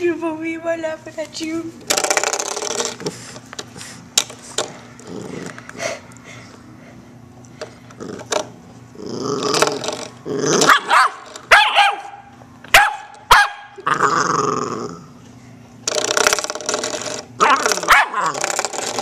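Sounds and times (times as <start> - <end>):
puppy growling: 5.0 - 6.0, 7.9 - 11.3, 13.7 - 15.2, 17.4 - 19.0
puppy yapping barks: 10.7 - 13.8, 17.4 - 18.4.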